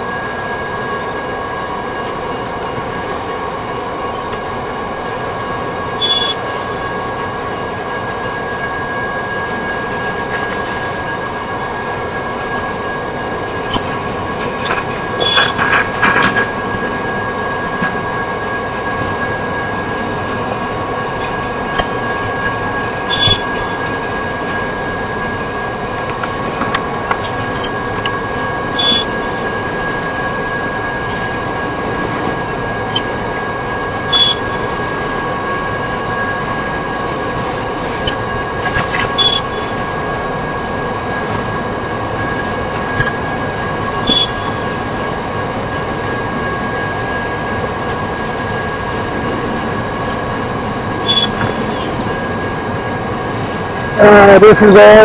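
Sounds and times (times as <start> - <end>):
train wheels rumbling on rail: 0.0 - 55.0
high-pitched rail ring: 6.0 - 7.0, 13.6 - 15.8, 21.6 - 22.2, 23.0 - 24.1, 26.5 - 29.6, 34.1 - 34.9, 39.1 - 39.9, 43.0 - 43.3, 44.0 - 44.8, 51.0 - 52.2.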